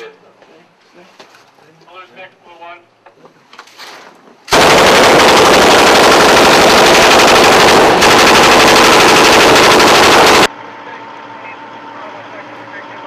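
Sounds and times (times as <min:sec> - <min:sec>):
automatic machine-gun fire: 0:04.5 - 0:10.5.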